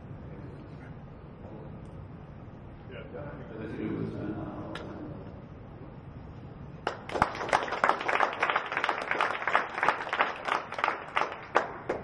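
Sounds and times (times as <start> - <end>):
audience applauding: 6.8 - 12.0.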